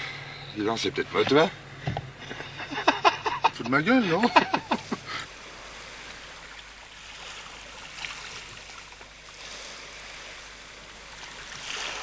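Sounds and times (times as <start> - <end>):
sea water lapping and splashing: 0.9 - 12.0.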